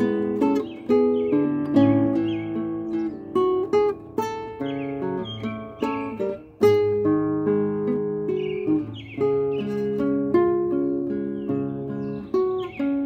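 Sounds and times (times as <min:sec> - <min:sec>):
bird singing: 0:00.0 - 0:13.0
fingerstyle nylon-string guitar: 0:00.0 - 0:13.0.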